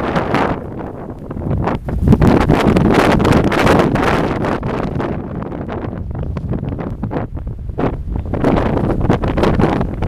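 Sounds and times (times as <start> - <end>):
wind buffeting microphone: 0.0 - 10.0.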